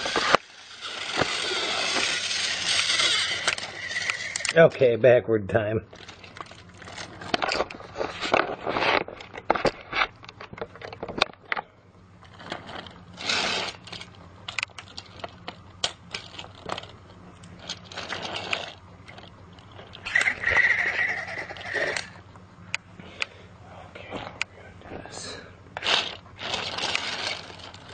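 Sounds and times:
toy train clattering on plastic track: 0.0 - 4.6, 12.3 - 16.9, 17.6 - 22.2, 25.8 - 27.9.

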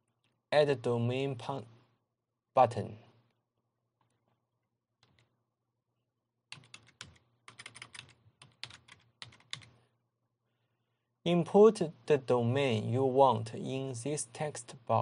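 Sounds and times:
computer keyboard typing: 5.0 - 5.3, 6.5 - 9.8.

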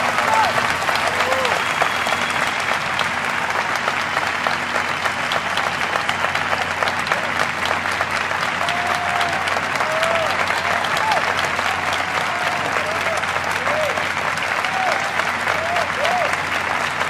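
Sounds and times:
crowd shouts: 0.0 - 2.8, 8.6 - 16.4
audience applauding: 0.0 - 17.0.

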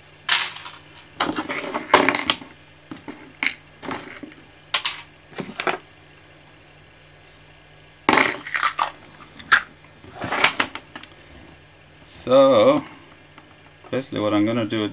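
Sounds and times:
plastic pieces and screws clattering: 0.3 - 5.8.

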